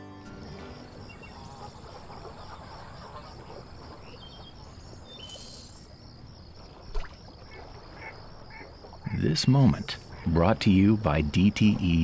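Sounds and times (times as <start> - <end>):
insects chirping: 0.1 - 12.0
bird chirps: 2.5 - 6.0.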